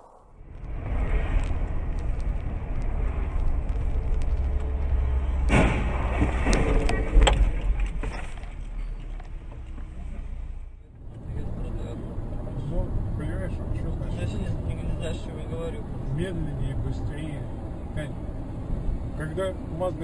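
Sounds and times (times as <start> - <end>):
car road and engine rumble: 0.0 - 20.0
debris knocks: 4.0 - 8.6
car crash impact: 4.7 - 8.6.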